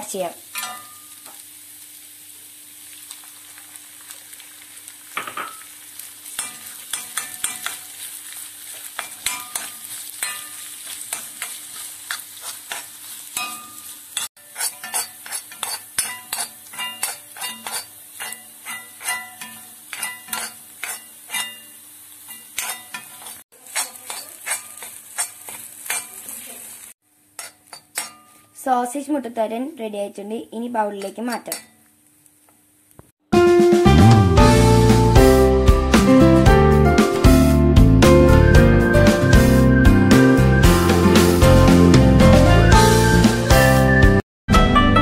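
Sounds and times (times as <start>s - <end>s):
frying sizzle: 0.0s - 29.3s, 30.6s - 44.2s
spoon scraping and tapping pan: 6.4s - 7.9s, 8.8s - 26.2s, 27.4s - 28.5s, 31.0s - 31.8s.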